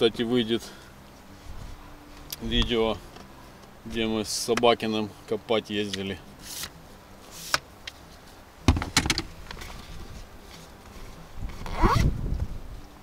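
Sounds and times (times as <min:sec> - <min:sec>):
loud thump: 0:08.7 - 0:09.2.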